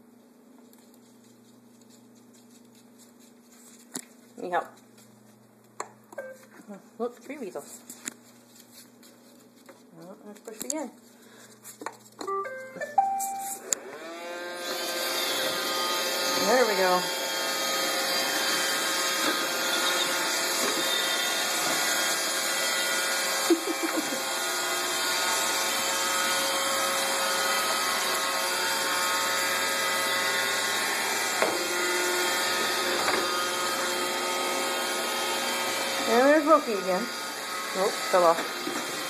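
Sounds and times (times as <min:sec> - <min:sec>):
robot vacuum motor hum: 0:13.7 - 0:39.0.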